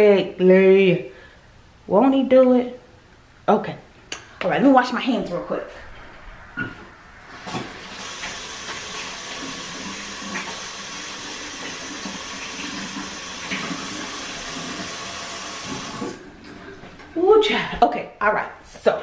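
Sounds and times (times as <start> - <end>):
tap water running: 7.3 - 17.2.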